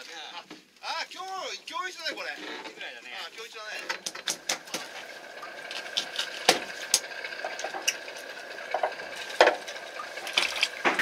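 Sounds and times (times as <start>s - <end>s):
sharp knocks and clicks: 3.8s - 5.0s
steady high motor whine: 3.8s - 11.0s.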